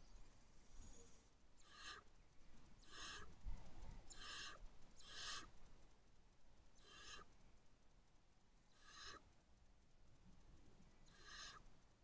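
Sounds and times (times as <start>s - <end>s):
owls raspy hissing calls: 1.6s - 2.1s, 2.8s - 3.4s, 4.1s - 5.6s, 6.8s - 7.3s, 8.7s - 9.2s, 11.1s - 11.6s.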